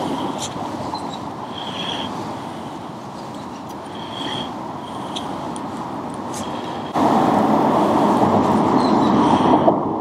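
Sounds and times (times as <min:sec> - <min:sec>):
road traffic rushing: 0:00.0 - 0:10.0.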